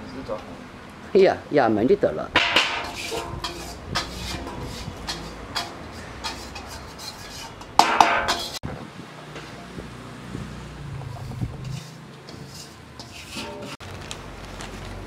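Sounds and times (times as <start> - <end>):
metal spoon scraping steel basin: 2.4 - 8.6, 11.0 - 13.8.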